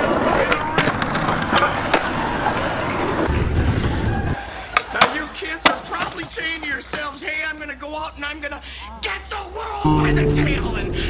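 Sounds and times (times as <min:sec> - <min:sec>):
skateboard clacking on ground: 0:00.0 - 0:03.3, 0:04.8 - 0:07.6
skateboard wheels rolling on concrete: 0:00.0 - 0:07.7.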